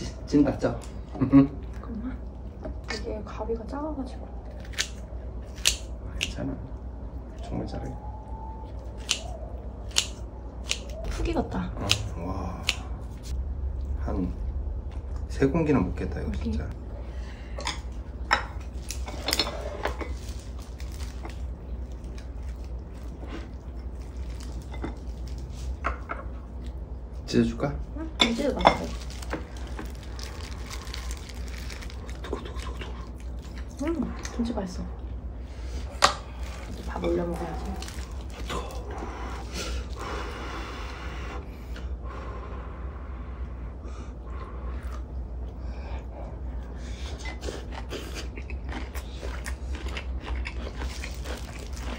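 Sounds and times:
steady low hum: 0:00.0 - 0:51.9
person chewing food: 0:17.5 - 0:27.2, 0:28.8 - 0:34.4, 0:35.0 - 0:40.4, 0:44.4 - 0:51.9.

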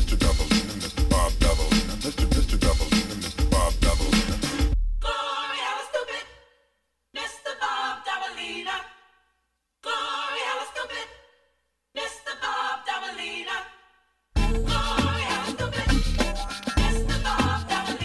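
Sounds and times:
music beat: 0:00.0 - 0:05.1, 0:14.4 - 0:18.0
unaccompanied sung vocal phrases: 0:00.0 - 0:18.0.

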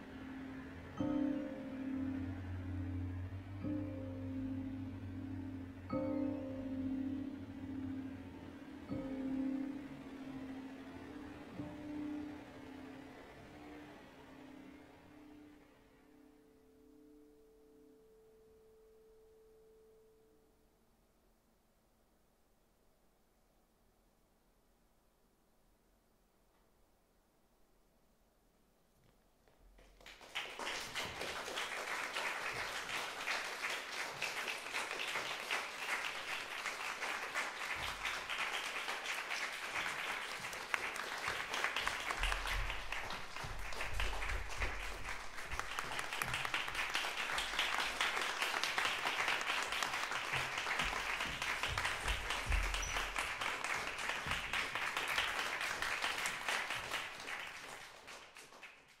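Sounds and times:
audience applauding: 0:29.8 - 0:59.0.

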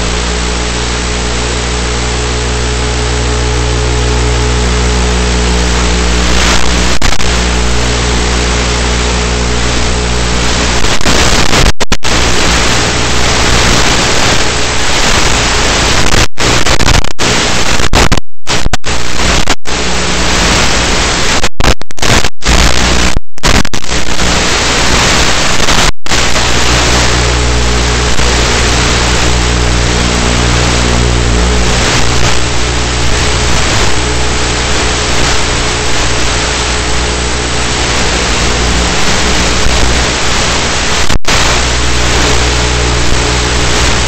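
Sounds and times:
electric motor hum: 0:00.0 - 0:10.8, 0:26.4 - 0:40.7
radio static hiss: 0:00.0 - 0:44.0.

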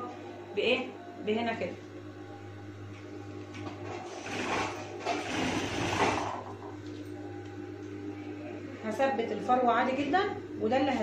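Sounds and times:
steady low hum: 0:00.0 - 0:11.0
sewing machine stitching: 0:04.0 - 0:06.4.

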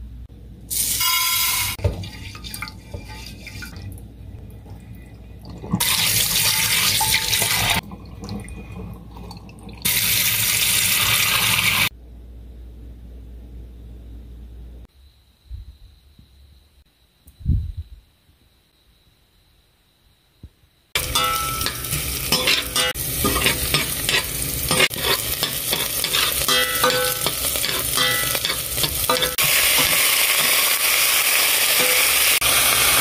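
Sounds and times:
tap water running into a dish: 0:05.5 - 0:11.9.

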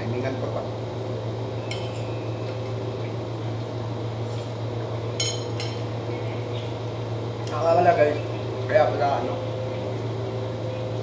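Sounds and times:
steady low hum: 0:00.0 - 0:11.0
metal spoon clinking on plate: 0:05.2 - 0:05.8.

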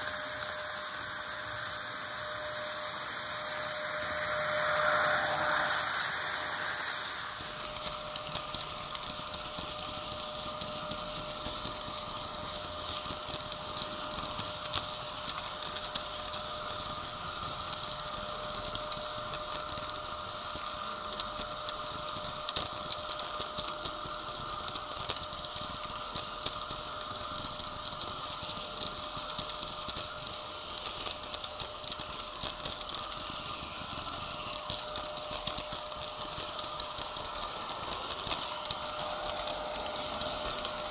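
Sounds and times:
model trains humming: 0:00.0 - 0:40.9
small clicks: 0:18.6 - 0:40.9.

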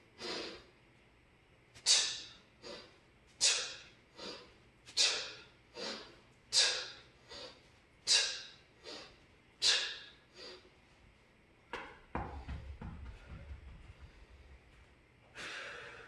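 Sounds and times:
man exhaling sharply: 0:01.8 - 0:10.6, 0:15.4 - 0:16.0.

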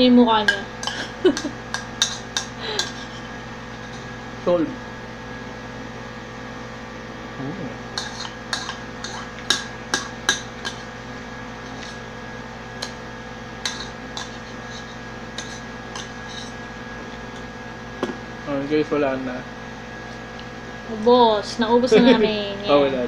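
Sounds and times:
spoon clinking against a bowl: 0:00.5 - 0:03.0, 0:15.3 - 0:16.6.

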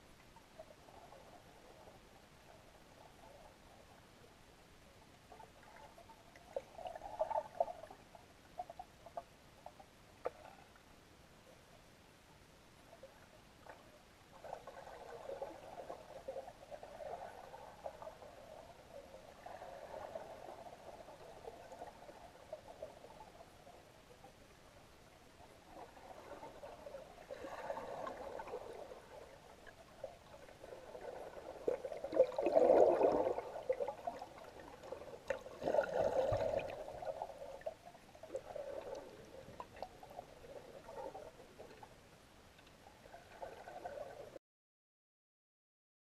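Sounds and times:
water sloshing and trickling: 0:25.2 - 0:44.4.

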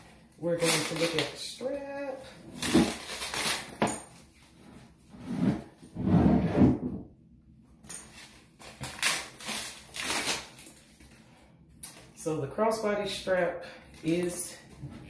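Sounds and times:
tissue paper and bag rustling: 0:02.1 - 0:04.4.

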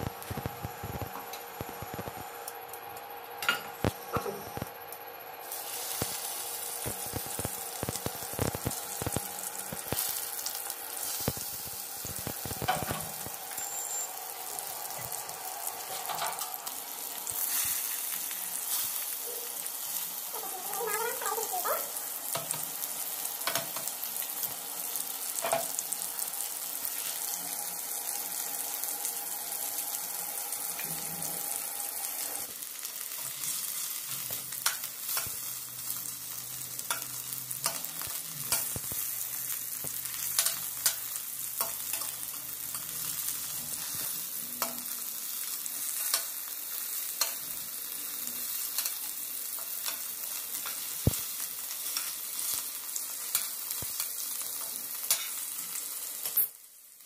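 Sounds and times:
vegetables sizzling in hot oil: 0:00.0 - 0:57.0.

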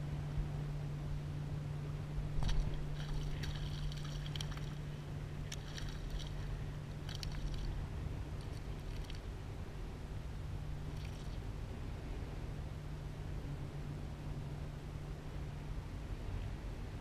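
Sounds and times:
distant boat motor drone: 0:00.0 - 0:17.0
water lapping: 0:02.4 - 0:09.4.

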